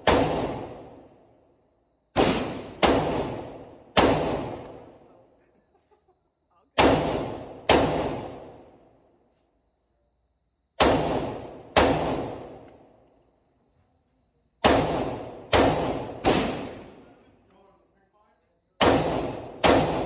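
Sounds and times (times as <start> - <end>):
rifle shots echoing: 0.0 - 1.1, 2.1 - 5.0, 6.8 - 8.8, 10.8 - 12.8, 14.6 - 17.2, 18.8 - 20.0.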